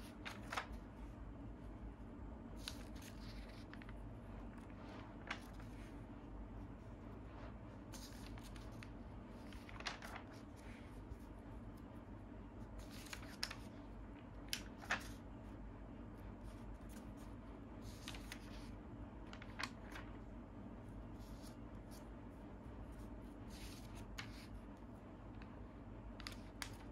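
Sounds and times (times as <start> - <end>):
magazine pages turning: 0.0 - 0.9, 2.6 - 6.0, 7.8 - 11.4, 12.8 - 15.3, 16.5 - 20.3, 23.0 - 24.6, 25.4 - 26.9
faint steady hum: 0.0 - 26.9.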